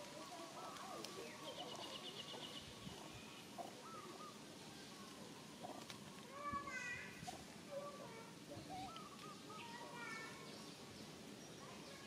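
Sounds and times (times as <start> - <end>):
animal chirping and cooing calls: 0.0 - 6.4, 7.3 - 10.5.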